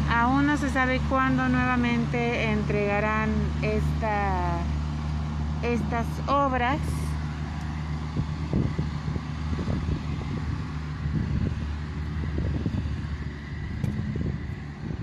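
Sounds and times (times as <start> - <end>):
low engine drone: 0.0 - 15.0
wind on microphone: 8.0 - 15.0.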